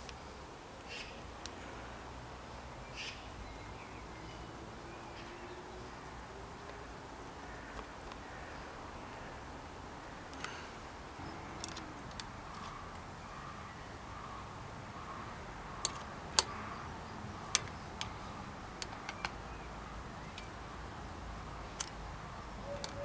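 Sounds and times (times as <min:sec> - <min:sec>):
allen key clicking on metal: 0:11.5 - 0:13.0, 0:15.8 - 0:16.6, 0:17.5 - 0:19.4, 0:21.6 - 0:22.1, 0:22.7 - 0:23.0.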